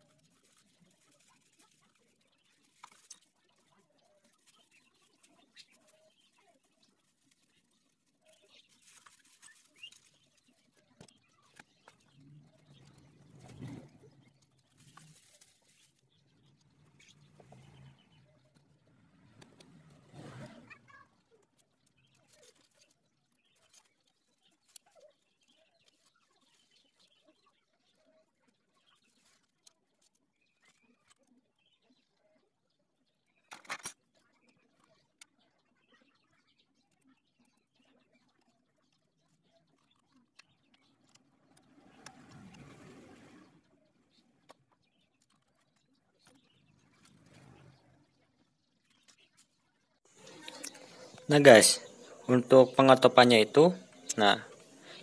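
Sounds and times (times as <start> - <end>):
soft rustling: 0.0 - 17.9
small clicks and squeaks: 0.0 - 51.3.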